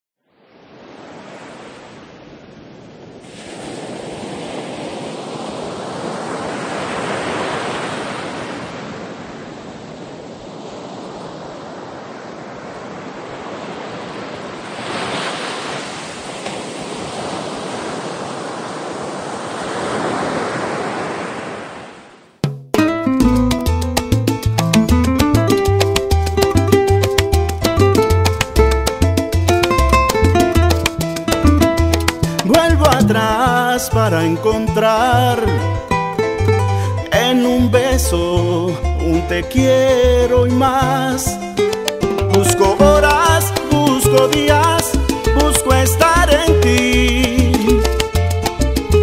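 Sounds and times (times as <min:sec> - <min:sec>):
ocean waves breaking: 0:00.4 - 0:22.4, 0:25.6 - 0:33.8, 0:40.8 - 0:49.0
salsa music: 0:22.4 - 0:49.0.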